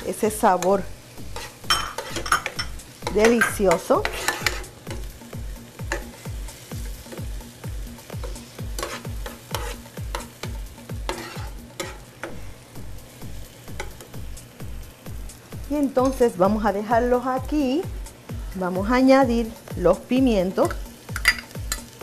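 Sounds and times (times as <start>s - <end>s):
onion and garlic sizzling in oil: 0.0s - 22.0s
background music beat: 0.2s - 22.0s
spatula scraping a pan: 0.6s - 5.1s, 5.8s - 7.2s, 8.2s - 12.3s.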